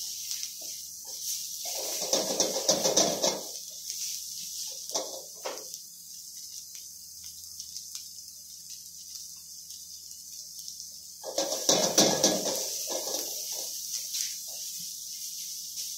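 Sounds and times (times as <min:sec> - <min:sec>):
spatula scraping a wok: 0:00.0 - 0:05.4, 0:11.2 - 0:15.9
food sizzling in a wok: 0:00.0 - 0:15.9
small ticks: 0:02.2 - 0:11.5.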